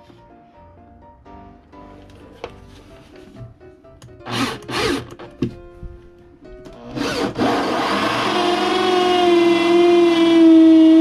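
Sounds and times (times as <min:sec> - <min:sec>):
power tool motor whine: 0:06.8 - 0:11.0.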